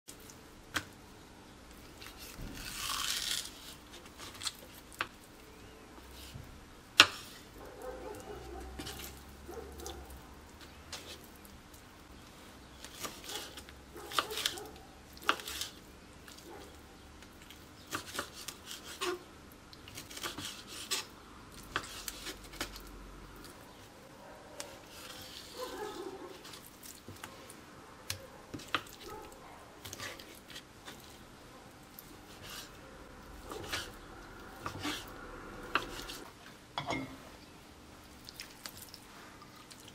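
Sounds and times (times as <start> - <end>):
knife scraping strokes: 17.9 - 19.2, 20.0 - 21.1, 21.7 - 22.8, 24.6 - 26.7, 32.2 - 32.8, 33.4 - 34.0, 34.6 - 36.3.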